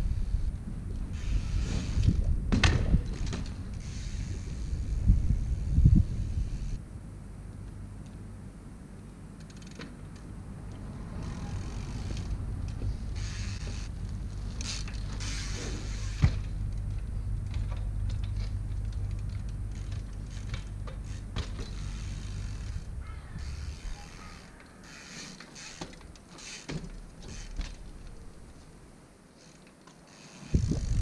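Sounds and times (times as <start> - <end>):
bike creaking and clicking: 0.0 - 31.0.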